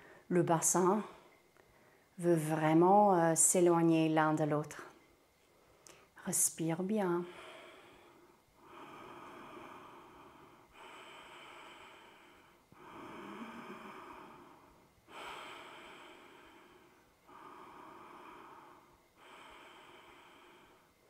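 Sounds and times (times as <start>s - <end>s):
woman breathing deeply: 0.0s - 0.3s, 1.1s - 2.2s, 7.3s - 21.0s.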